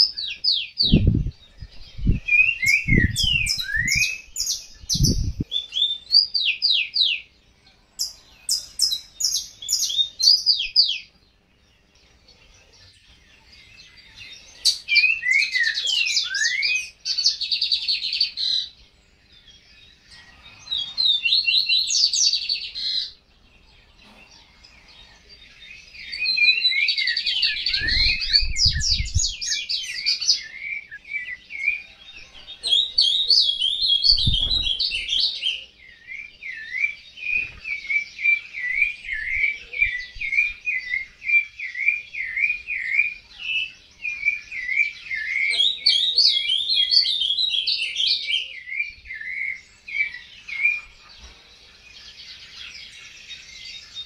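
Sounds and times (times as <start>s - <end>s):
songbirds twittering and warbling: 0.0s - 54.0s.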